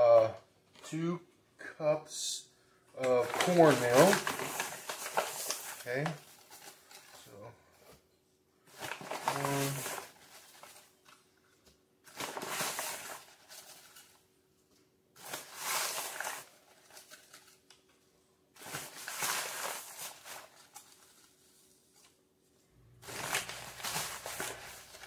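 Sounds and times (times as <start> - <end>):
bag rustling: 23.0 - 25.0.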